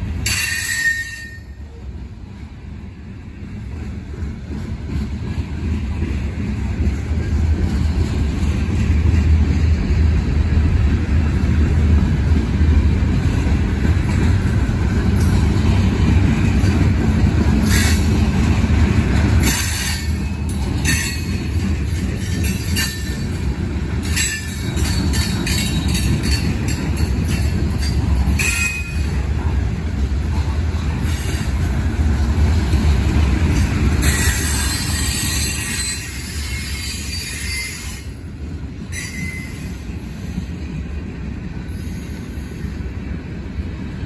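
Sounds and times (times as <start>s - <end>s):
low rumble of wheels on rail: 0.0s - 44.0s
train clanks: 0.0s - 44.0s
high-pitched wheel squeals: 0.2s - 1.6s, 34.0s - 38.1s.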